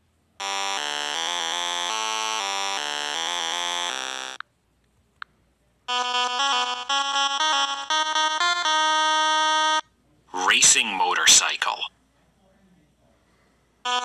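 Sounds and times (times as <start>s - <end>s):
chiptune melody: 0.4s - 4.4s, 5.9s - 9.8s.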